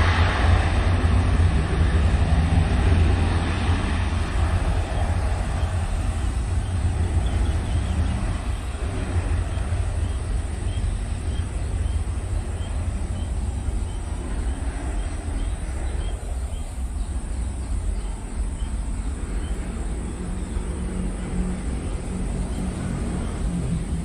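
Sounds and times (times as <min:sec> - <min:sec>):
distant jet engines rumbling: 0:00.0 - 0:24.0
bird chirping: 0:04.9 - 0:08.8, 0:09.4 - 0:20.8.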